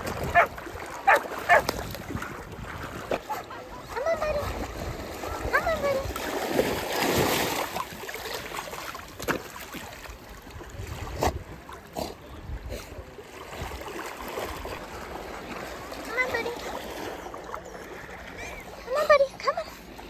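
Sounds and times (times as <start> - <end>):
dog splashing through water: 0.0 - 3.3, 4.2 - 10.0
wind rumble on microphone: 0.0 - 6.2, 10.5 - 11.6.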